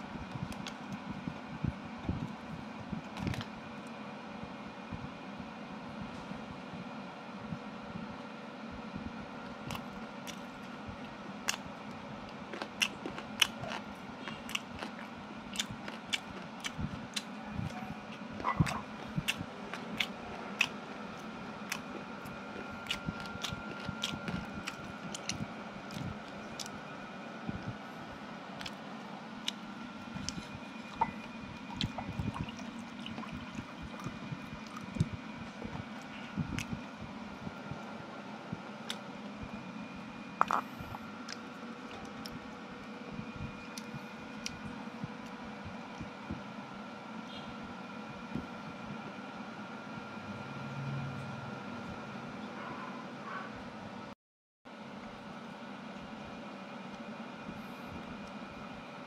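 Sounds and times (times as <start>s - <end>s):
low steady hum: 0.0s - 59.0s
person chewing food: 9.6s - 26.8s, 28.6s - 36.8s.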